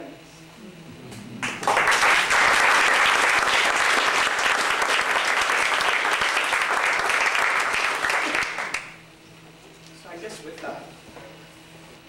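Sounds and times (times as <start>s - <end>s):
audience applauding: 1.4s - 9.0s.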